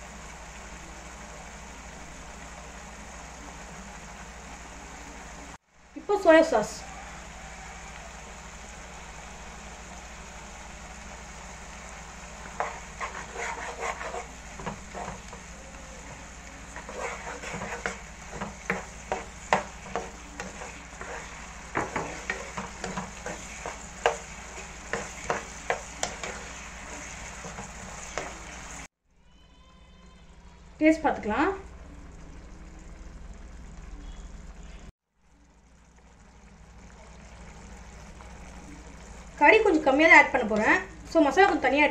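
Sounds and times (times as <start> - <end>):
vegetables sizzling in pan: 0.0 - 29.0, 30.7 - 41.9
spoon knocking and scraping pan: 12.4 - 15.5, 16.1 - 28.9.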